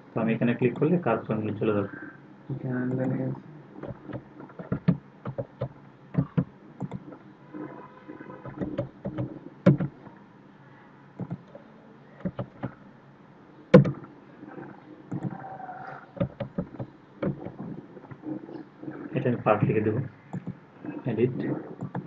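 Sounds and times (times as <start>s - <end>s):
computer mouse clicks: 3.8s - 7.2s, 8.4s - 9.9s, 11.2s - 11.6s, 12.2s - 12.8s, 13.8s - 19.1s, 20.3s - 20.6s, 21.7s - 22.0s.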